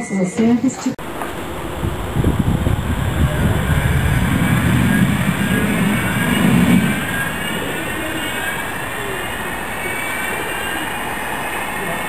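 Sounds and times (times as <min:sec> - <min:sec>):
tram rumbling on rails: 0:00.0 - 0:12.0.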